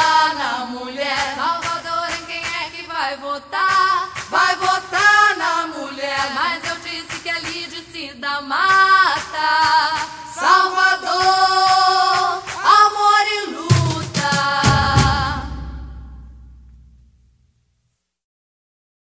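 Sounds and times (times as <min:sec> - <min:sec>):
voices singing: 0:00.0 - 0:15.9
backing music: 0:08.7 - 0:17.3.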